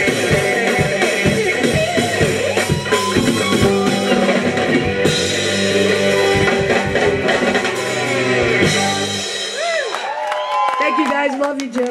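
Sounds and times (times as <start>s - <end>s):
electric blues band playing: 0.0s - 10.2s
electric guitars: 0.0s - 10.2s.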